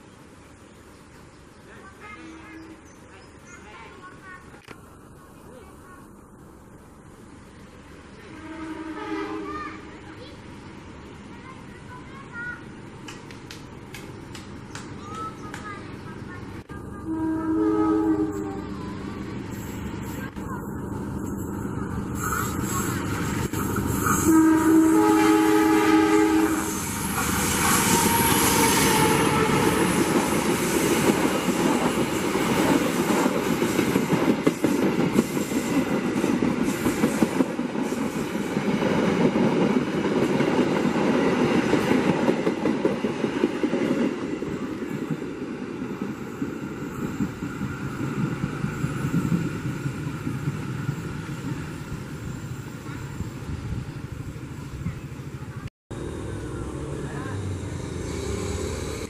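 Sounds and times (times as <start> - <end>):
locomotive engine and wheels rumbling: 0.0 - 59.0
locomotive horn chord: 8.3 - 9.5, 17.0 - 18.7, 24.1 - 26.8.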